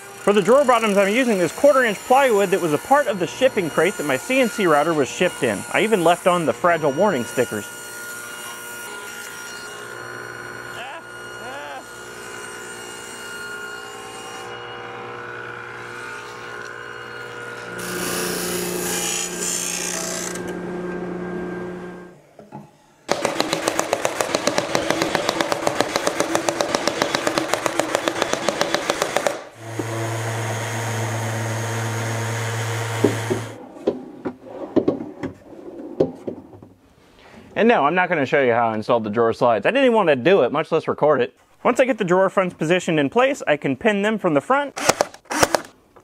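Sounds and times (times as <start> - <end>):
table saw cutting plywood: 0.0 - 22.2, 23.1 - 34.9
steady motor hum: 14.6 - 22.1
brad nailer firing: 23.1 - 33.6, 44.8 - 45.8
drawers sliding on slides: 33.6 - 36.6.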